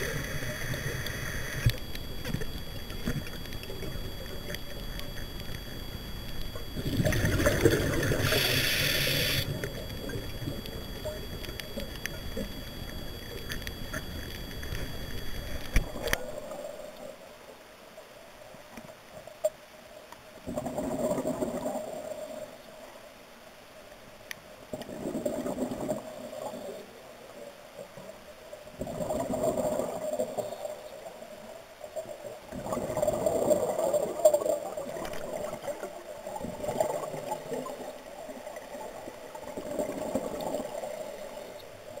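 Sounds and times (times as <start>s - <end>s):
diver regulator exhalation bubbles: 6.8s - 10.2s.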